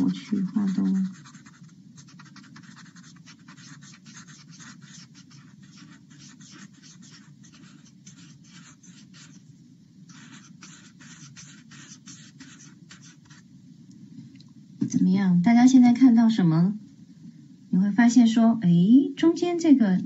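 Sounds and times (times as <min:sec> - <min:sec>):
drawing tool scratching on paper: 0:00.0 - 0:09.5, 0:10.1 - 0:13.5.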